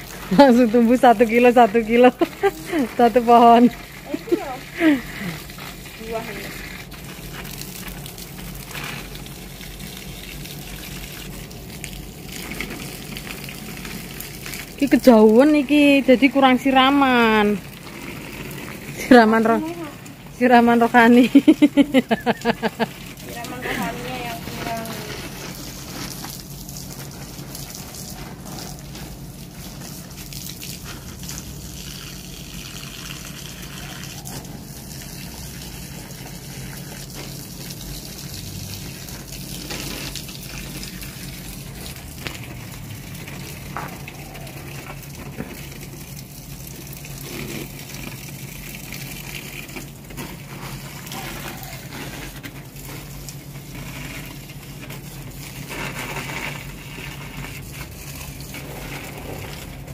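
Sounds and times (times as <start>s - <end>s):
hose water spraying: 0.0s - 59.9s.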